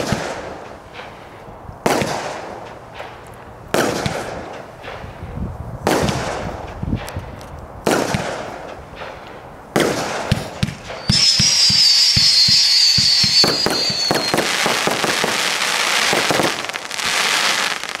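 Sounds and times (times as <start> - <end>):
firework crackling: 0.0 - 18.0
firework reports: 0.0 - 18.0
firework whistle: 10.3 - 18.0.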